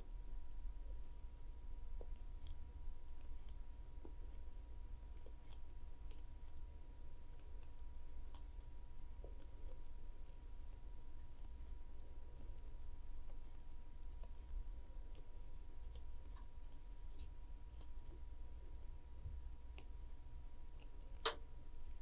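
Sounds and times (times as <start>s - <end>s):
steady low hum: 0.0s - 22.0s
wire clicking while coiled: 20.8s - 21.4s.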